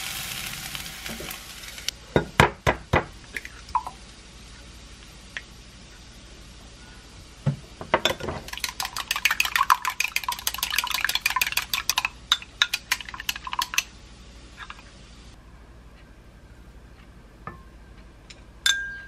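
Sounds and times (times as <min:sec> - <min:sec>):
chopsticks tapping glass: 0:18.6 - 0:19.0.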